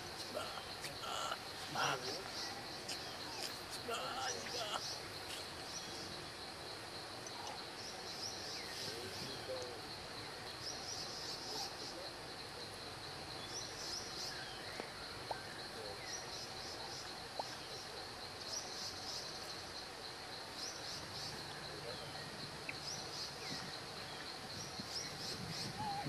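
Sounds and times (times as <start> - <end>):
insects chirping in buzzy bursts: 0.0 - 26.0
steady outdoor hiss: 0.0 - 26.0.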